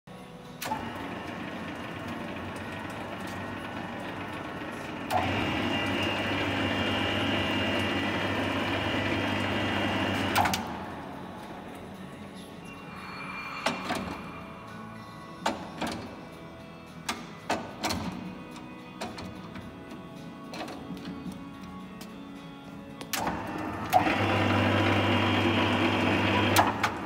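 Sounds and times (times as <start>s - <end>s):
high machine whine: 0.3s - 16.9s
machine mechanical hum: 0.5s - 12.5s, 23.1s - 27.0s.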